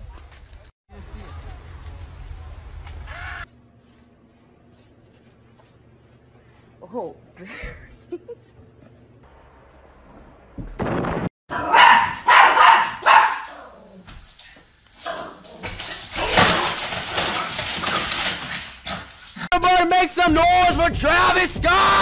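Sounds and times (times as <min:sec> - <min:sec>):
small dog barking: 0:11.5 - 0:13.8.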